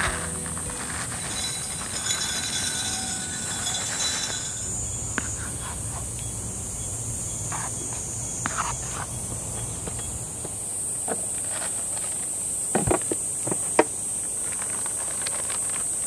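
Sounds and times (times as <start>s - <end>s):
high-pitched insect drone: 0.0s - 9.0s.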